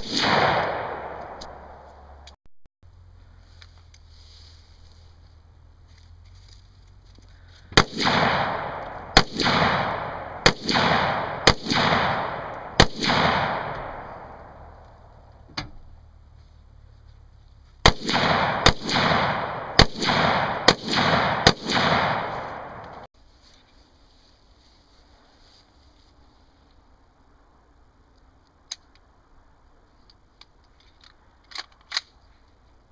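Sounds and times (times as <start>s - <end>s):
pistol shots with echo: 0.0s - 1.9s, 7.8s - 14.7s, 17.8s - 23.1s.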